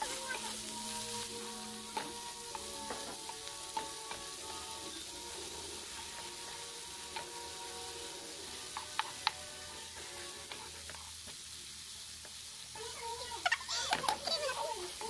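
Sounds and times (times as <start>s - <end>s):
spatula clicking and scraping pan: 0.0s - 11.5s, 12.1s - 12.5s
vegetables sizzling in hot oil: 0.0s - 15.0s.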